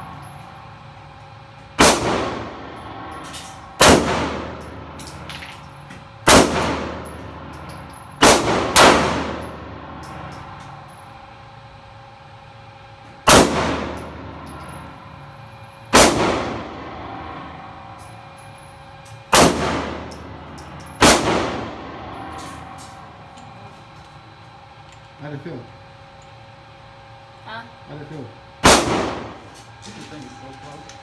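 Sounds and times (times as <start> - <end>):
pistol shots echoing indoors: 1.8 - 3.2, 3.8 - 5.3, 6.2 - 7.2, 8.2 - 9.7, 13.2 - 14.2, 15.9 - 17.4, 19.3 - 20.3, 21.0 - 22.3, 28.6 - 29.4.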